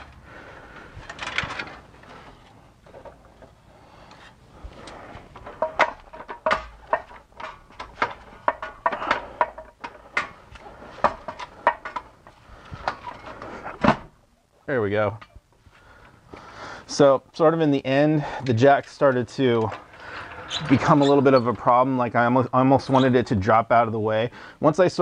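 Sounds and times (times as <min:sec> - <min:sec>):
metallic clinks and knocks: 0:05.4 - 0:10.3.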